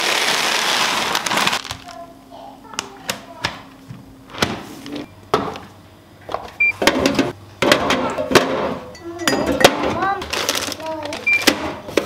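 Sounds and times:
containers rattling and clinking: 6.8 - 12.0.

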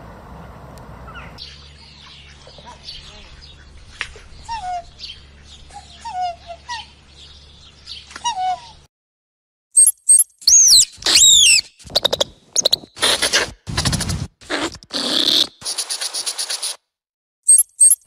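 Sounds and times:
kookaburra calling: 4.4 - 7.0, 10.5 - 13.4
meerkat shrill squeaks: 9.8 - 14.1.

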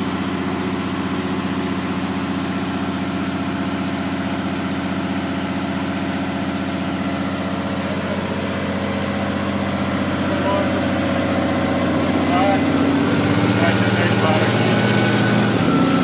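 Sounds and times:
diesel engine running steadily: 0.0 - 16.0
fire pump running: 0.0 - 16.0.

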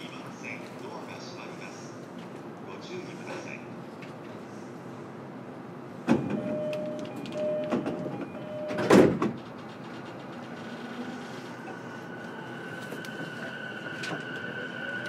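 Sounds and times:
train door clunk: 6.0 - 10.8
sliding doors shutting with thud: 6.0 - 11.0.

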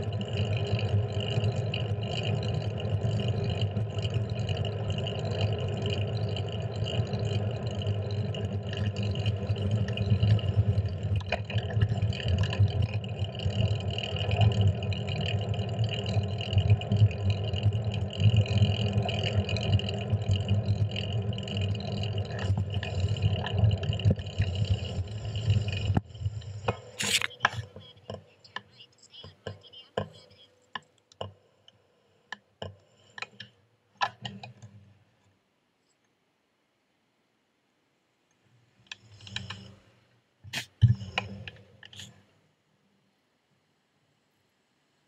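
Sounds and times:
bicycle road rumble: 0.0 - 30.5, 38.8 - 42.2
wind: 0.0 - 45.0.

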